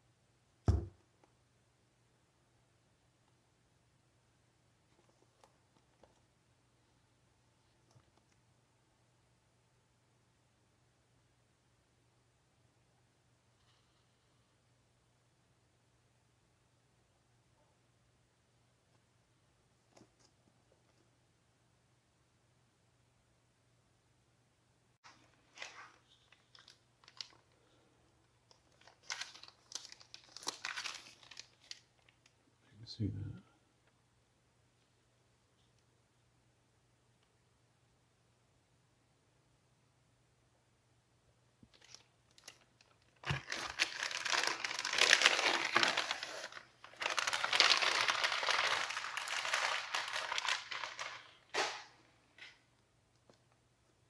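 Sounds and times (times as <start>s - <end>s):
plastic mailer crinkling: 25.2s - 27.6s, 28.5s - 32.2s, 41.8s - 51.8s.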